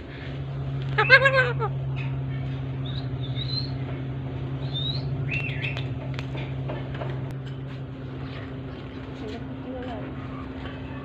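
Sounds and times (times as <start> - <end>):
steady low hum: 0.0 - 11.0
parakeets chirping: 0.9 - 6.0.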